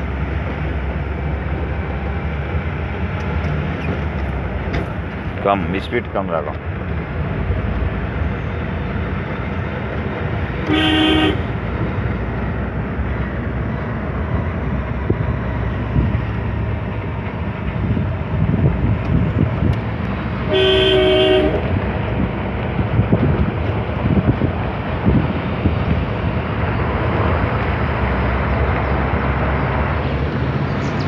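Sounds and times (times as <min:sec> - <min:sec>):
vehicle engine and wind rumble: 0:00.0 - 0:31.0
car horn honking: 0:10.6 - 0:11.6, 0:20.5 - 0:21.7.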